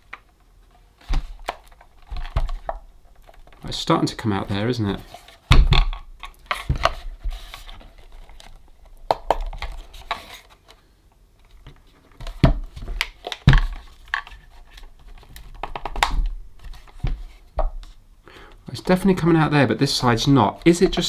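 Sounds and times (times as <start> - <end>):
knocks and clicks of handling: 0.0 - 3.6, 5.4 - 10.2, 11.4 - 18.0.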